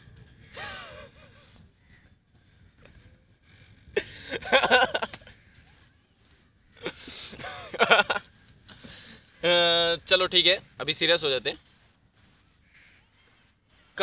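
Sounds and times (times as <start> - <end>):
crickets chirping: 0.0 - 14.0
man laughing: 0.5 - 1.6, 4.0 - 5.3, 6.8 - 8.3.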